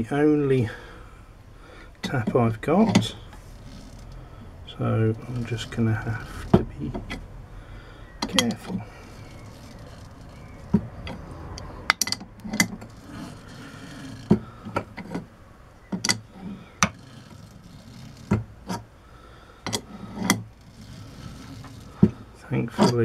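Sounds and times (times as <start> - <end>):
sharp clicks and creaks: 1.8 - 7.4, 8.1 - 23.0
tap scraping in metal: 2.0 - 4.2, 5.2 - 7.3, 8.2 - 15.3, 19.6 - 23.0.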